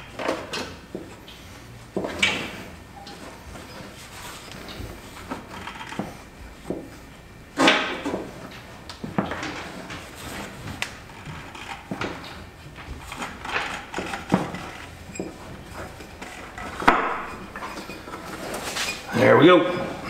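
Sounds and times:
metal clunks and scraping: 0:07.6 - 0:20.0.

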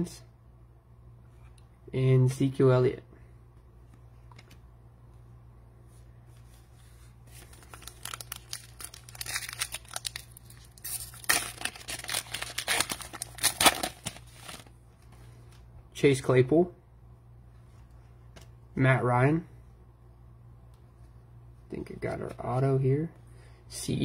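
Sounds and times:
foil wrapper crinkling and tearing: 0:07.3 - 0:14.7.

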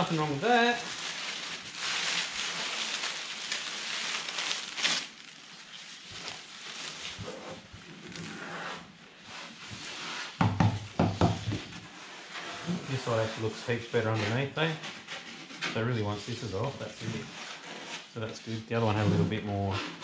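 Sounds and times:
strips rustling: 0:00.0 - 0:08.4
wood veneer tearing and crumpling: 0:00.0 - 0:10.4.

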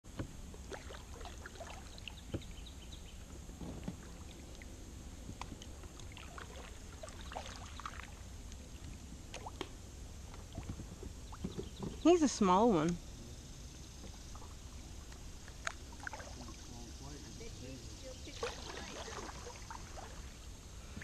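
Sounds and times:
paddle dipping into water: 0:00.1 - 0:12.1, 0:14.0 - 0:17.4, 0:18.2 - 0:21.0
small splashes and drips: 0:00.6 - 0:02.5, 0:05.3 - 0:11.7, 0:14.0 - 0:16.9, 0:18.2 - 0:20.4.

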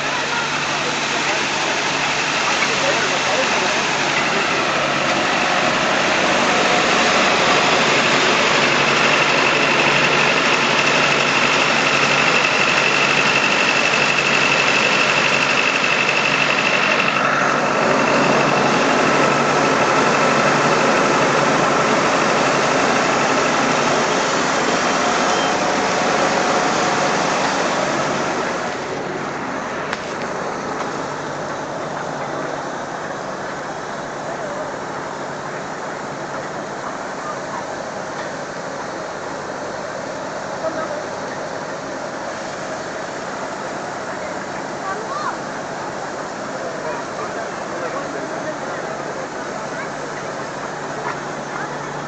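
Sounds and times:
steam locomotive hissing: 0:00.0 - 0:52.0
faint high whistling tone: 0:25.3 - 0:25.6.

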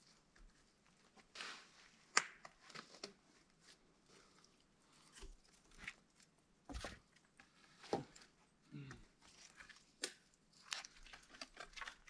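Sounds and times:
person climbing a tree trunk: 0:02.5 - 0:10.0.

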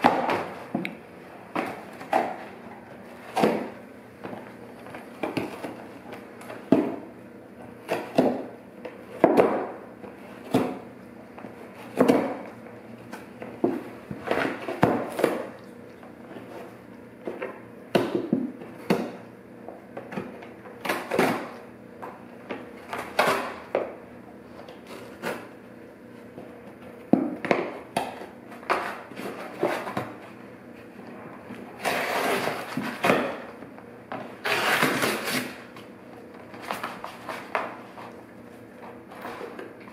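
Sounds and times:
dog chewing and tearing cardboard: 0:31.7 - 0:33.4, 0:34.4 - 0:38.2.

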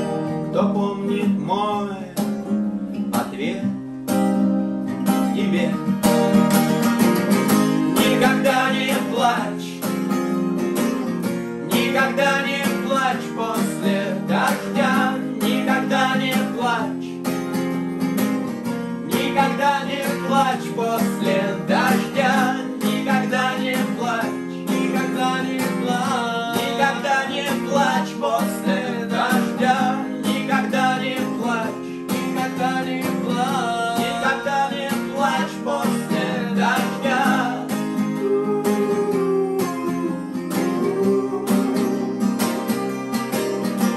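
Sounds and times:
acoustic guitars strummed: 0:00.0 - 0:43.9
men singing: 0:07.7 - 0:09.9, 0:11.6 - 0:17.3, 0:19.0 - 0:43.1.

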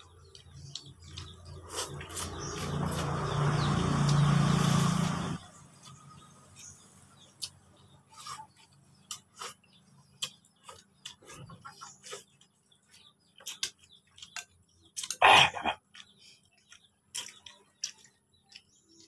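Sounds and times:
wet chewing and lip smacking: 0:00.0 - 0:03.2, 0:08.6 - 0:19.0
loud mouth sound: 0:15.2 - 0:15.8.

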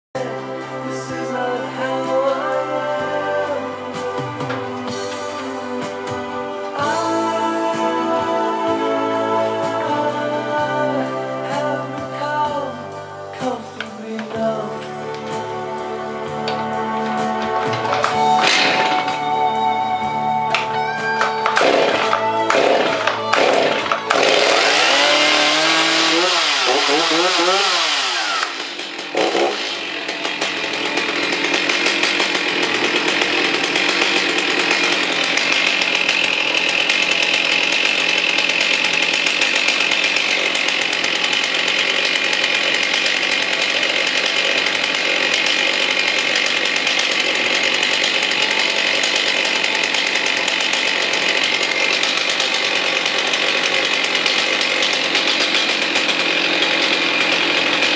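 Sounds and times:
chainsaw engine running: 0:00.2 - 0:57.9
chainsaw pull cord start: 0:13.4 - 0:57.9.

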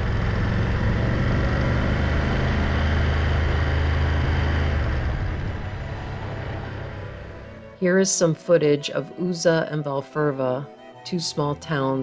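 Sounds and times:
wind rush: 0:00.0 - 0:07.4
motorcycle engine drone: 0:00.0 - 0:07.8.

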